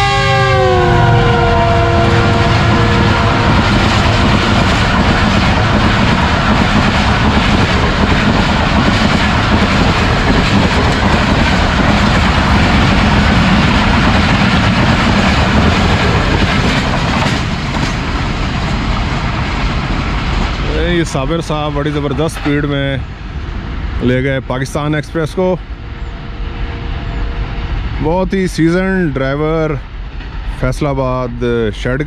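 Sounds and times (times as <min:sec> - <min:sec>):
train horn: 0:00.0 - 0:04.2
train wheels rushing on rail: 0:00.0 - 0:32.0.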